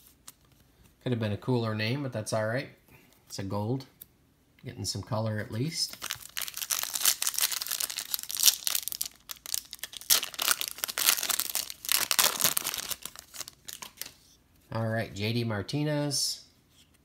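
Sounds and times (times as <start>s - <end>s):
foil wrapper crinkling: 5.9s - 14.2s.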